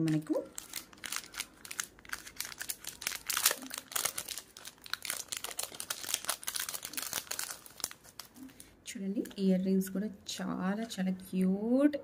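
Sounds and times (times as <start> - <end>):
plastic packet crinkling: 0.0 - 8.5.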